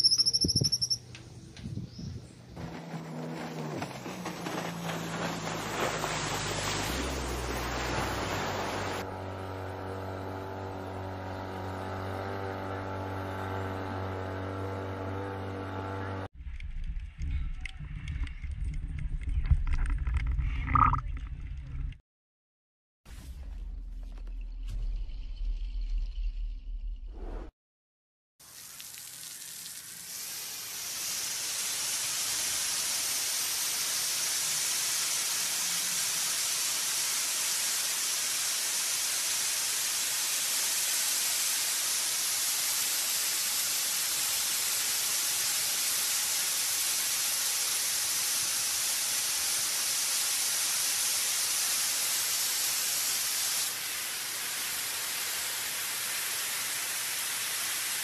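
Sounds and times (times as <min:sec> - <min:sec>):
water cannons spraying: 0:02.6 - 0:16.0, 0:28.4 - 0:58.0.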